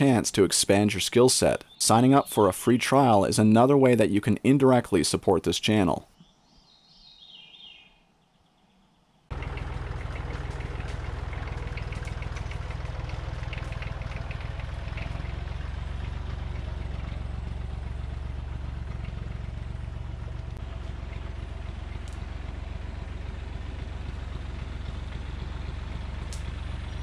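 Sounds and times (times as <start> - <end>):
birds chirping: 0.0 - 12.8
tractor engine running: 9.3 - 27.0.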